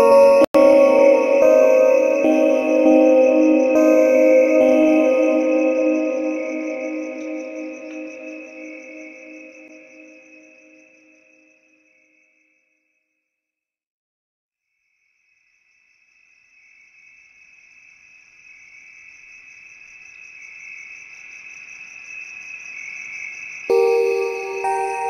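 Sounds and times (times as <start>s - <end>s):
high pulsing trill: 0.0s - 10.2s
music with mallet and chime notes: 0.0s - 10.4s, 23.7s - 25.0s.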